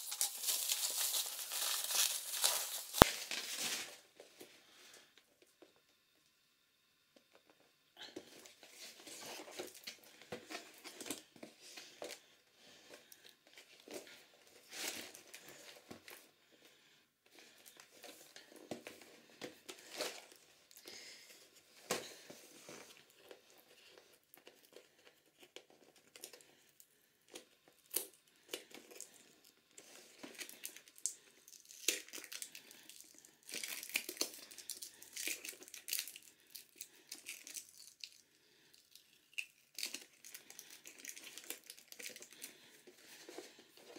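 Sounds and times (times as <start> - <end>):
plastic shrink-wrap crinkling: 0.0 - 4.1, 29.9 - 38.2, 38.8 - 43.9.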